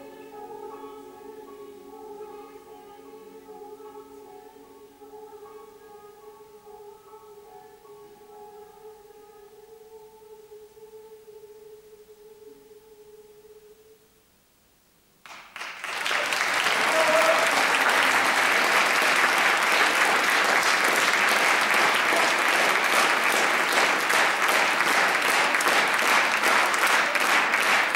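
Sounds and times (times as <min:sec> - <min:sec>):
audience applauding: 0:15.2 - 0:27.9.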